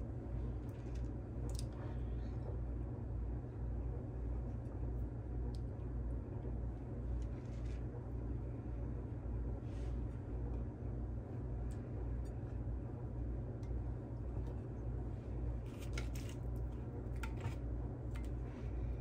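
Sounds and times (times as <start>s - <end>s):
steady low hum: 0.0s - 19.0s
gritty rustle of crumbs: 7.1s - 7.9s, 15.3s - 18.4s.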